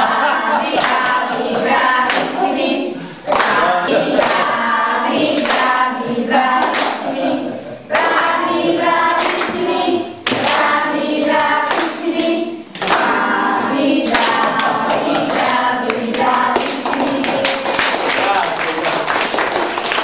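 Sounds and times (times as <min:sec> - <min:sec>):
group of voices singing: 0:00.0 - 0:18.4
hands clapping: 0:00.7 - 0:02.4, 0:03.3 - 0:04.6, 0:05.3 - 0:05.8, 0:06.6 - 0:07.1, 0:07.9 - 0:08.4, 0:09.2 - 0:09.6, 0:10.2 - 0:20.0.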